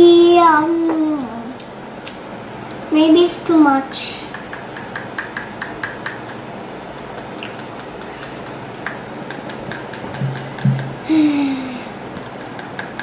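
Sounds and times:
plastic tube tapping plastic cup: 7.1s - 11.0s.

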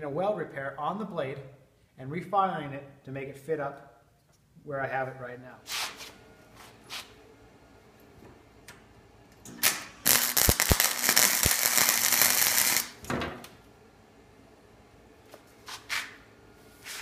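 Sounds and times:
welder arc crackling: 9.4s - 13.6s.

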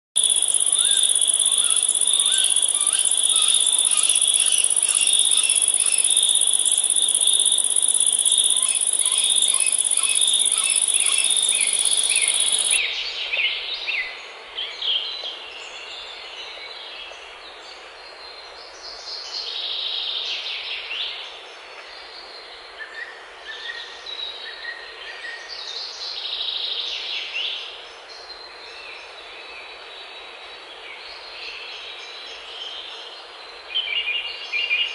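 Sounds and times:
birds chirping: 0.2s - 12.8s
insect trill: 0.2s - 12.8s
bird song: 0.2s - 34.9s.

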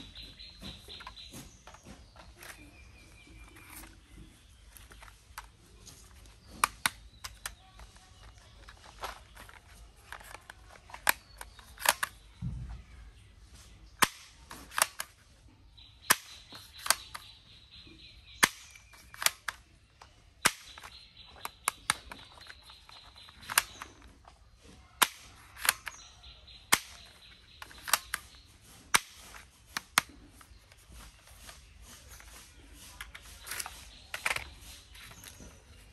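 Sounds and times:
toy revolver clicking: 10.2s - 12.2s, 25.0s - 26.1s, 26.7s - 30.1s.

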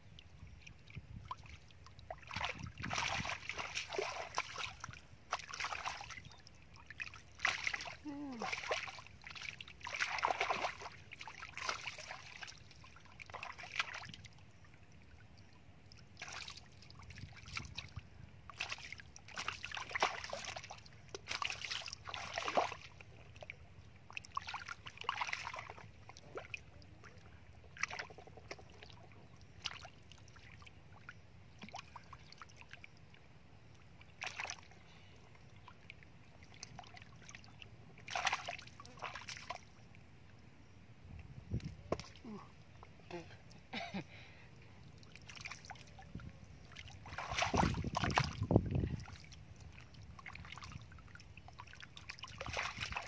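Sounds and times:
hands splashing in muddy water: 2.2s - 6.2s, 7.0s - 12.5s, 18.6s - 22.9s, 38.0s - 39.6s, 46.8s - 49.1s, 52.1s - 53.0s.

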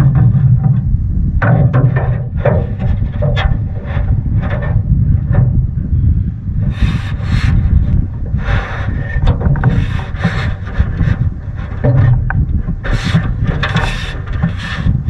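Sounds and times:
wind rumble on microphone: 0.0s - 15.0s
water splashing around canoe: 8.3s - 15.0s.

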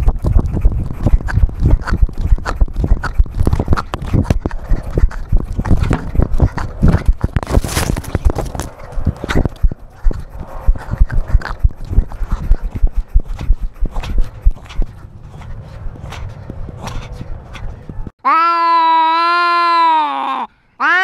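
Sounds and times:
camera thumping against running cat: 0.0s - 15.0s.

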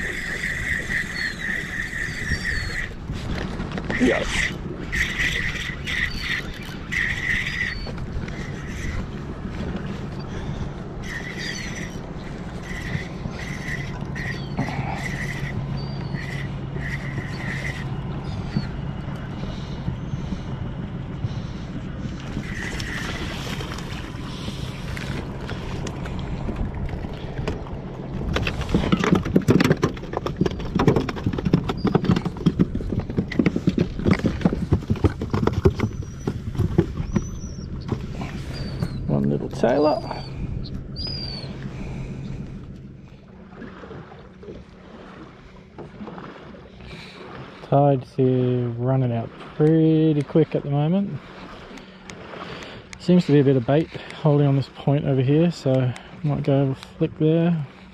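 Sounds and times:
boat motor humming: 0.0s - 57.9s
gear clattering on deck: 28.2s - 38.1s.

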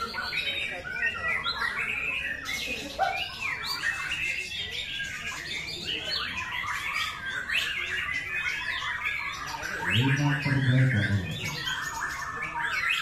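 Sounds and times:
songbird singing: 5.0s - 13.0s.

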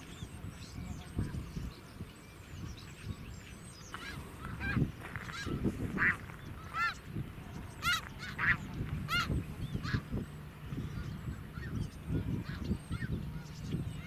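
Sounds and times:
geese honking: 3.9s - 14.0s.

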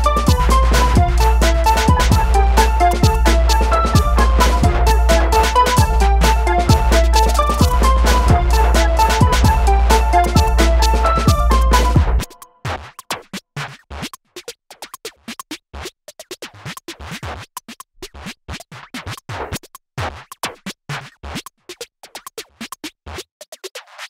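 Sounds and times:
low drum beats: 0.0s - 12.4s
sparse electronic music: 0.0s - 12.6s.

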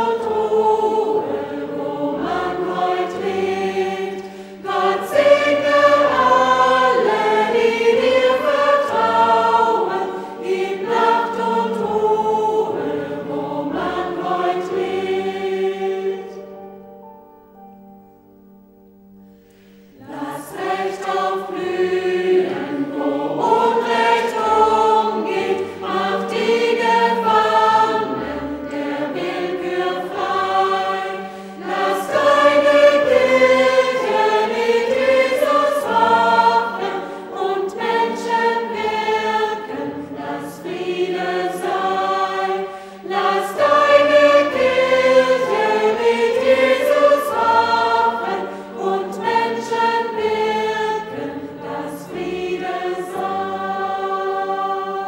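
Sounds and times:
choir singing a hymn: 0.0s - 17.2s, 19.4s - 55.0s.

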